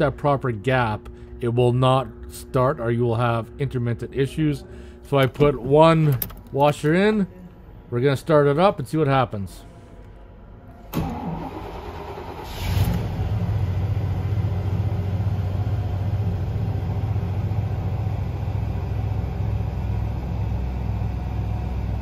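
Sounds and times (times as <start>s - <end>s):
engine cranking on starter: 10.9s - 13.9s
engine idling: 11.0s - 22.0s.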